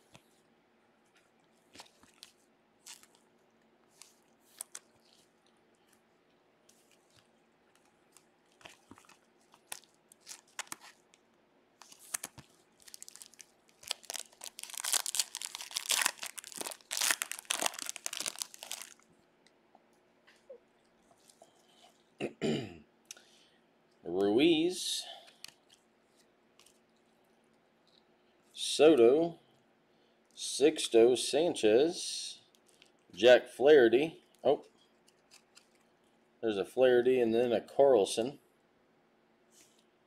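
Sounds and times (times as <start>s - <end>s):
soft rustles and clicks: 0.0s - 22.1s
plastic wrapper crinkling and tearing: 1.2s - 6.0s, 6.7s - 19.2s, 25.3s - 27.1s, 34.3s - 35.9s.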